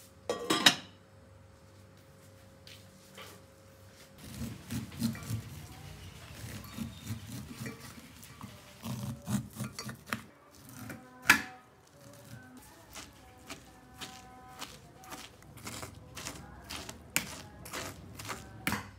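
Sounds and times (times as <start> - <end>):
knife scraping corn cob: 4.2 - 18.9.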